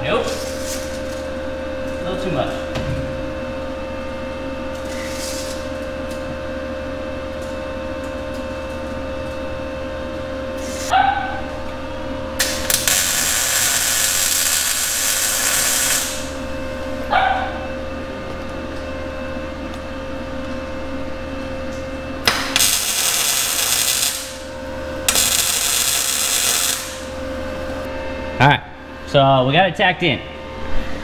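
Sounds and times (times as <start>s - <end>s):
welding crackle: 12.4s - 16.4s, 22.3s - 24.5s, 25.1s - 27.1s.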